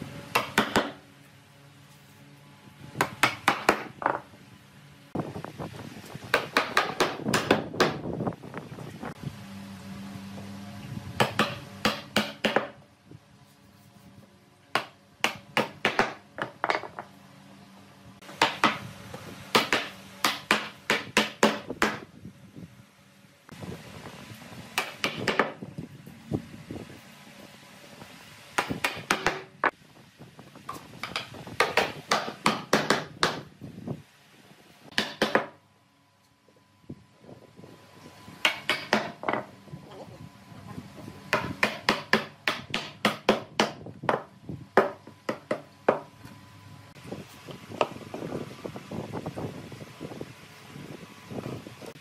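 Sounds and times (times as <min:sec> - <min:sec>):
hammer striking nails into wood: 0:00.3 - 0:01.0, 0:03.0 - 0:04.2, 0:06.3 - 0:08.0, 0:11.2 - 0:12.8, 0:14.8 - 0:16.9, 0:18.4 - 0:18.8, 0:19.5 - 0:22.0, 0:24.8 - 0:25.6, 0:28.6 - 0:29.5, 0:31.0 - 0:33.5, 0:34.9 - 0:35.6, 0:38.5 - 0:39.4, 0:41.3 - 0:46.1.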